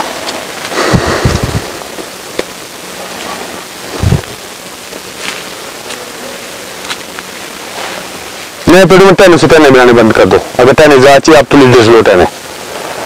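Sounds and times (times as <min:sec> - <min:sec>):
outdoor hiss: 0:00.0 - 0:13.0
low thumps on microphone: 0:00.8 - 0:02.5, 0:04.0 - 0:04.4.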